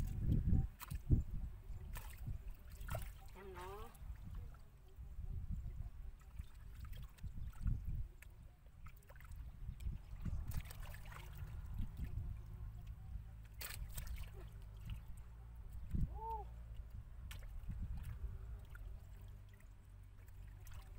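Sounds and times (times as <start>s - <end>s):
hands splashing in water: 1.8s - 4.3s, 6.2s - 12.2s, 13.3s - 15.1s, 16.7s - 20.9s
low steady rumble: 9.4s - 20.9s.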